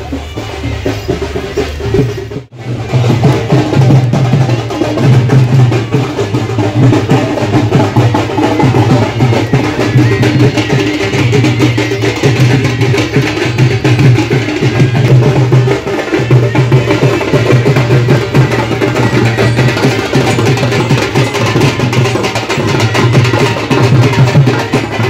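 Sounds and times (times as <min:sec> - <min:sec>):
drum-led percussion music: 0:00.0 - 0:25.0.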